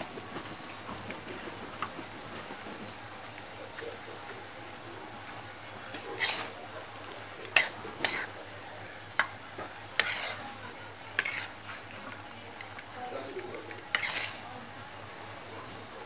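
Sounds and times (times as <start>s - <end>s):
metal spoon scraping a pan: 6.0s - 8.5s, 9.1s - 14.5s.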